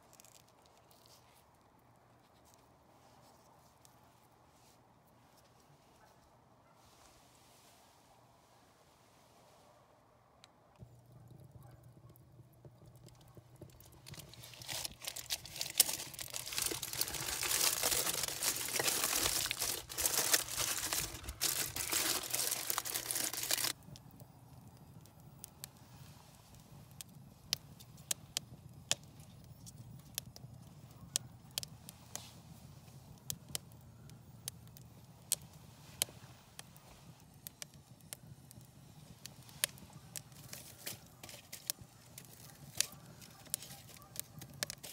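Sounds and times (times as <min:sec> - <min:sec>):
campfire crackling and popping: 0:10.8 - 0:44.9.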